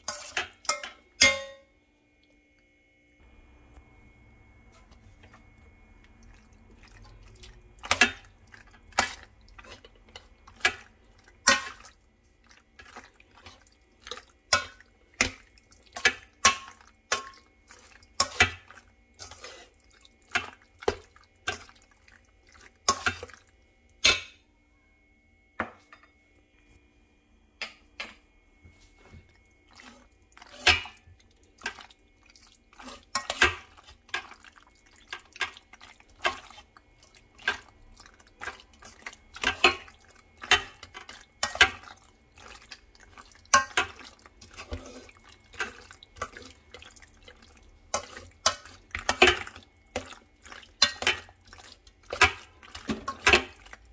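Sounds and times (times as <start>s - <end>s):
spoon scraping metal colander: 0.0s - 1.0s, 16.0s - 21.7s
wet pasta squelches: 3.2s - 24.0s, 28.6s - 53.9s.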